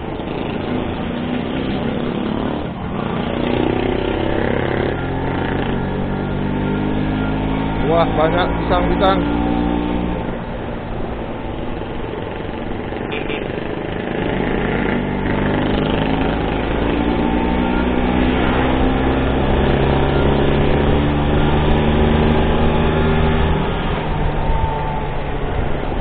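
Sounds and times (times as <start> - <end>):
wind rushing over microphone: 0.0 - 26.0.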